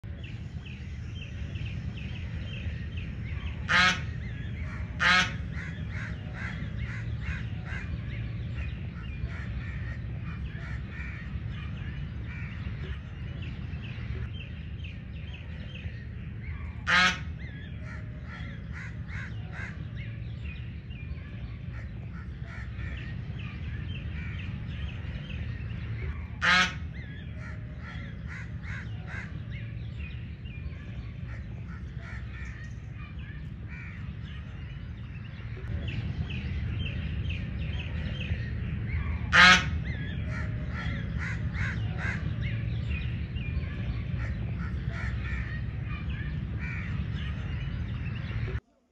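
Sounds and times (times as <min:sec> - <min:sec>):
constant low rumble: 0:00.0 - 0:48.7
geese honking: 0:03.4 - 0:13.8, 0:16.6 - 0:19.9, 0:21.6 - 0:34.9, 0:36.6 - 0:48.6.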